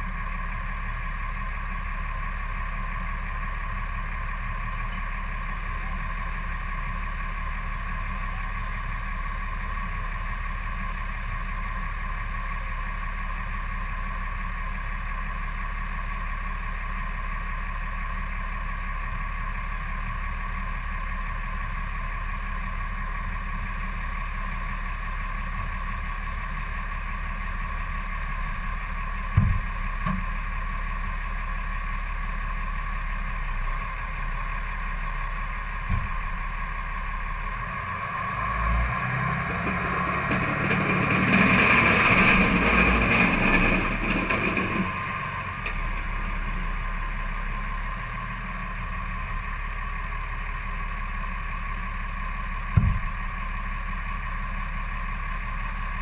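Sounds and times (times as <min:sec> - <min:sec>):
truck engine idling: 0:00.0 - 0:56.0
short thump: 0:29.3 - 0:30.3, 0:35.9 - 0:36.3, 0:52.7 - 0:53.2.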